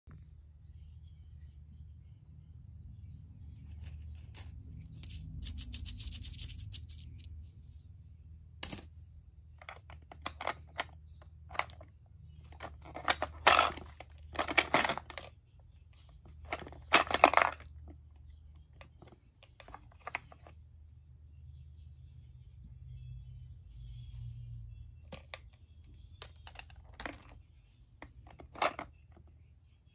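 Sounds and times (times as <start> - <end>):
coin clinking in coin slot: 3.7 - 7.3, 12.6 - 15.3.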